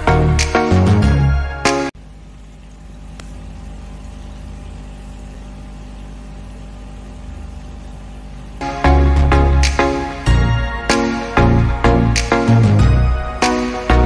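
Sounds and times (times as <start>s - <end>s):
background music: 0.0s - 2.0s, 8.6s - 14.0s
aquarium air pump hum: 0.0s - 14.0s.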